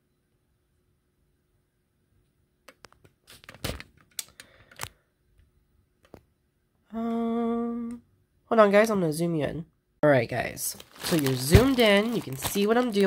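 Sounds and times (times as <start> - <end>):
plastic bag crinkling: 10.6 - 13.0
jewelry clacking in bag: 10.8 - 13.0.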